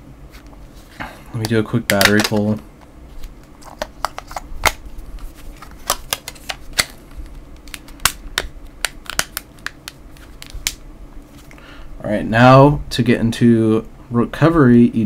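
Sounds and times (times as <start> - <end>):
plastic phone cover clicks and snaps: 1.9 - 2.5, 7.7 - 10.8.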